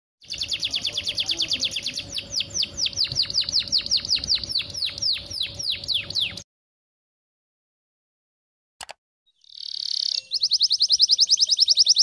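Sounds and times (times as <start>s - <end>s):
canary singing: 0.2s - 6.4s, 9.3s - 12.0s.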